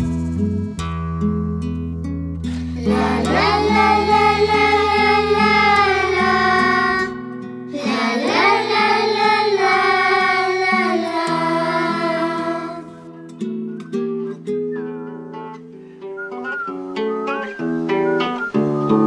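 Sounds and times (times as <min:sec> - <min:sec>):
bass: 0:00.0 - 0:07.8, 0:18.5 - 0:19.0
acoustic guitar: 0:00.0 - 0:19.0
children singing held notes: 0:02.6 - 0:13.0.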